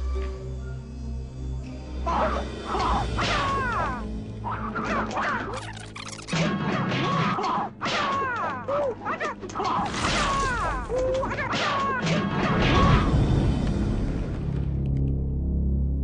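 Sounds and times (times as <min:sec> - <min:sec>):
trailer music: 0:00.0 - 0:16.0
fight hits and crashes: 0:06.4 - 0:13.3.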